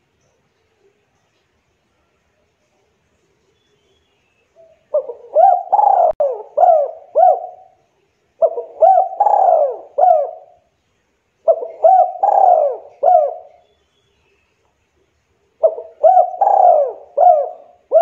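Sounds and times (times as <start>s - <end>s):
dove cooing: 4.6s - 7.8s, 8.4s - 10.7s, 11.4s - 13.6s, 15.6s - 18.0s.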